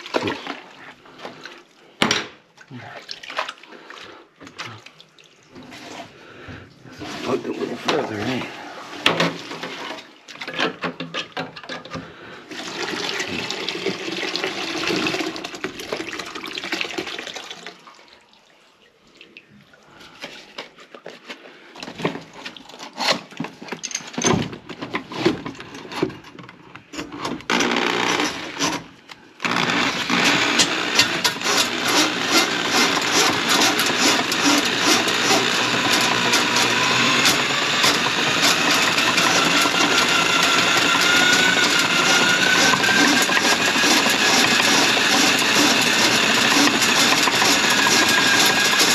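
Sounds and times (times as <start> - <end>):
water splashing in sink: 2.9 - 5.9, 12.5 - 19.5
electric drain snake rattling: 27.4 - 48.9.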